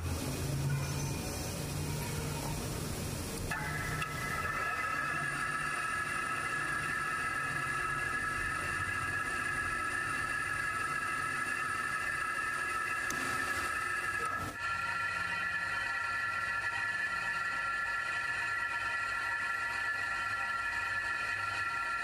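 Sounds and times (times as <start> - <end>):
metal lathe whining: 0.0 - 22.0.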